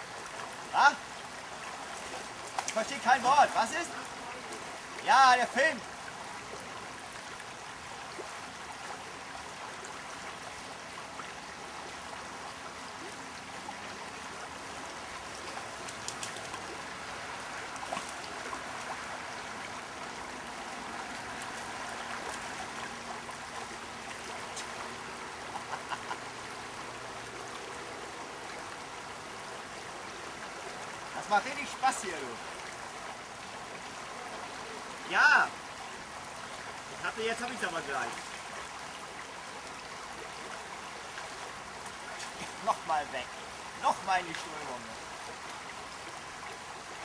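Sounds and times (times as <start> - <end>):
shallow river flowing: 0.0 - 47.0
faint clicks: 15.8 - 16.6.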